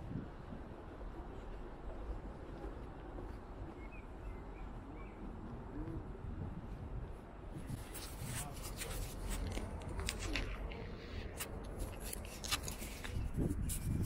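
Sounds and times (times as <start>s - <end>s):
faint voices of passersby: 0.0s - 14.0s
low street rumble: 0.0s - 14.0s
sharp clicks and rubbing: 7.7s - 14.0s.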